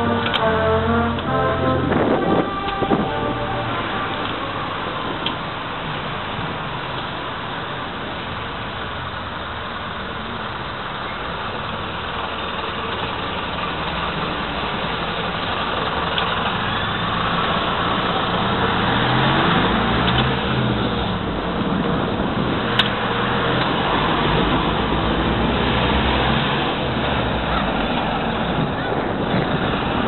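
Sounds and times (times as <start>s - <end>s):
passing traffic din: 0.0s - 30.0s
vehicle engine passing by: 16.9s - 28.7s.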